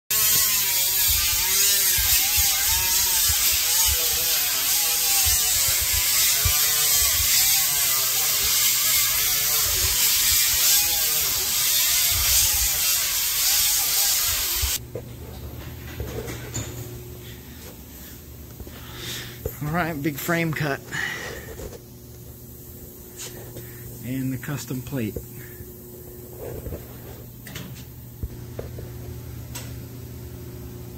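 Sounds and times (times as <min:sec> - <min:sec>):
hissing machine noise: 0:00.1 - 0:14.8.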